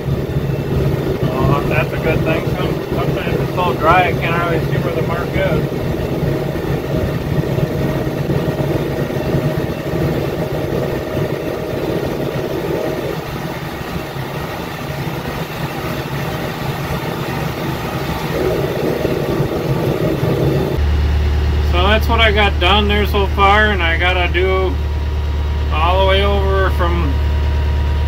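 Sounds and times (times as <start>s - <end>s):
tractor diesel engine running: 0.0s - 28.0s.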